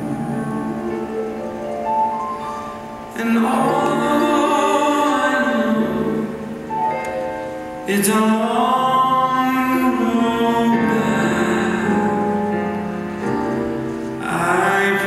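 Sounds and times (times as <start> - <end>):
instrumental accompaniment: 0.0 - 15.0
man singing into microphone: 3.1 - 6.7, 7.8 - 12.9, 14.2 - 15.0.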